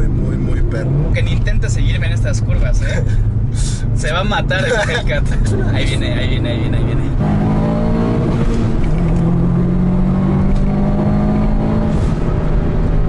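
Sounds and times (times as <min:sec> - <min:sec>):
car engine pulling: 0:00.0 - 0:13.0
road rumble: 0:00.0 - 0:13.0.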